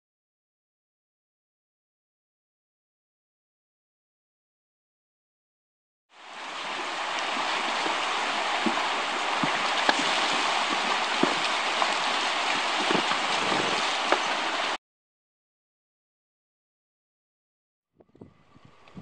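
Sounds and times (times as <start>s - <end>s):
stream rushing over stones: 6.1s - 14.8s
horses splashing in water: 6.2s - 14.8s.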